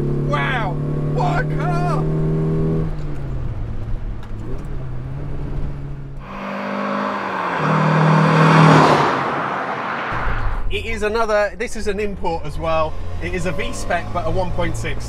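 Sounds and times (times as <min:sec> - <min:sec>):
sports car driving past: 0:04.2 - 0:10.7.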